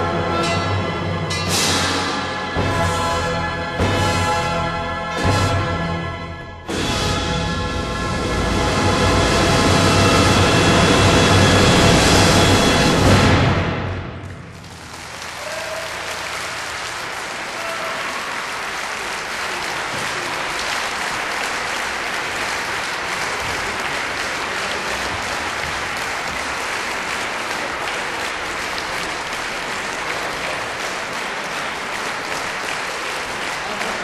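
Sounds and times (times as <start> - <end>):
audience applauding: 14.2 - 34.0.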